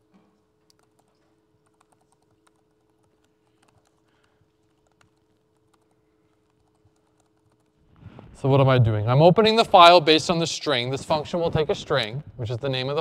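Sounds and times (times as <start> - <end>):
laptop keyboard typing: 0.0 - 7.8
low steady hum: 0.0 - 13.0.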